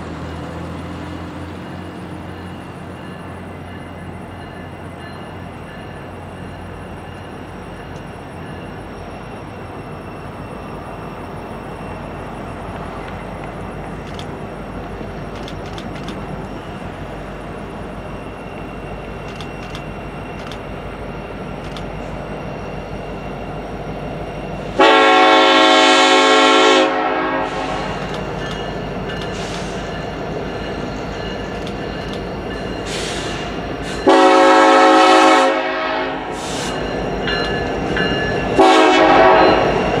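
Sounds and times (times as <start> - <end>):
diesel locomotive engine rumble: 0.0 - 40.0
multi-note train air horn: 24.8 - 28.0, 34.0 - 36.8, 38.6 - 39.7.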